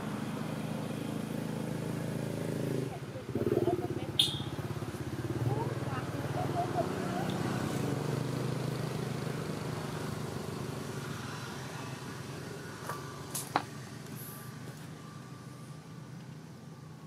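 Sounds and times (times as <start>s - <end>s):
vehicle engine running: 0.0s - 17.0s.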